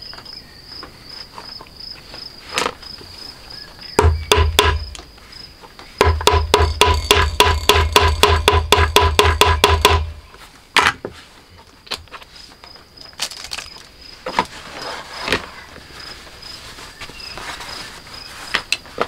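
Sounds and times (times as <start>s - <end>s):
leather and canvas rustling: 13.2s - 19.0s.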